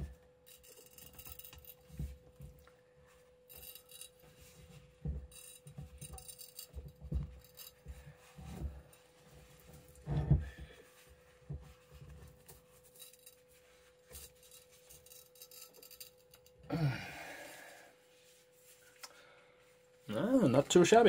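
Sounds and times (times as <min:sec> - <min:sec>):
faint steady hum: 0:00.0 - 0:21.0
soft handling thumps and rubs: 0:01.4 - 0:15.4, 0:17.9 - 0:19.0.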